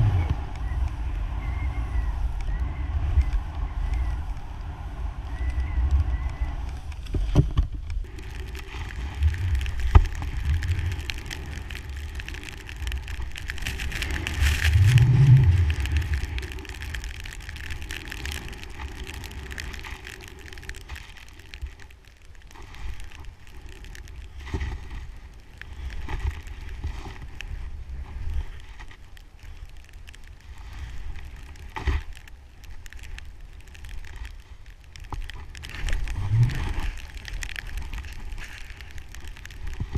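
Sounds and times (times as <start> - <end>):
wind buffeting microphone: 0.0 - 21.7.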